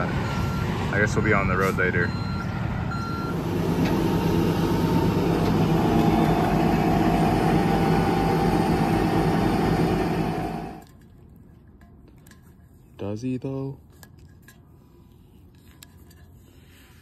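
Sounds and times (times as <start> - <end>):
reversing beep: 0.0 - 3.4, 4.2 - 8.5
tow truck engine humming: 0.0 - 10.8.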